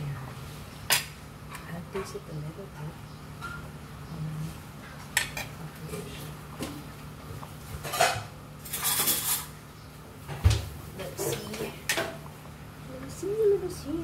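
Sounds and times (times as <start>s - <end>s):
metal utensils and dishes clinking: 7.8s - 9.5s.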